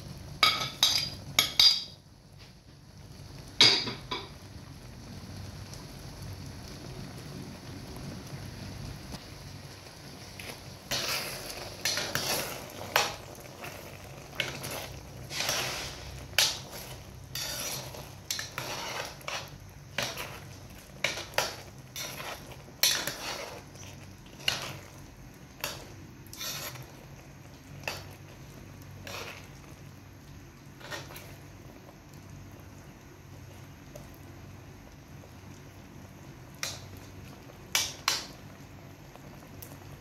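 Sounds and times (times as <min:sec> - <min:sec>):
spoon scraping in stew: 0:10.4 - 0:25.0, 0:25.6 - 0:27.0, 0:29.0 - 0:29.6, 0:30.8 - 0:31.4.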